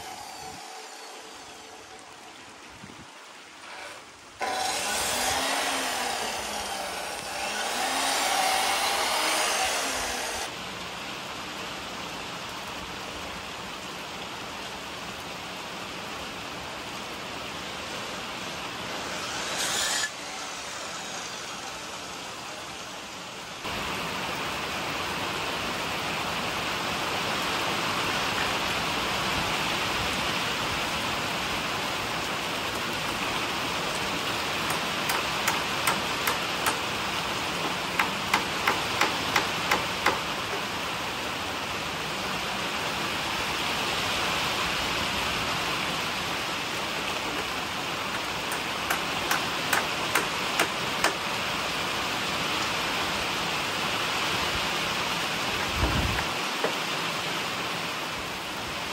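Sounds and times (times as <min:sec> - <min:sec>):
steady rain falling: 0:00.0 - 0:19.4, 0:20.2 - 0:58.9.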